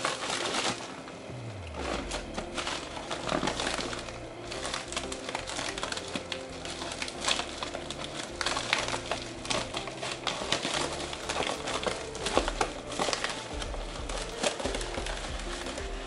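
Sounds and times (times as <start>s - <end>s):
plastic film crinkling: 0.0s - 16.0s
scissors snipping plastic: 2.0s - 16.0s.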